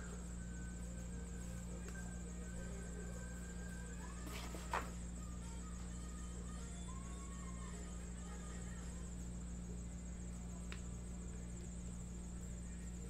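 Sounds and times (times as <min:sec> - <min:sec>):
high-pitched whine: 0:00.0 - 0:08.4
low electrical hum: 0:00.0 - 0:13.0.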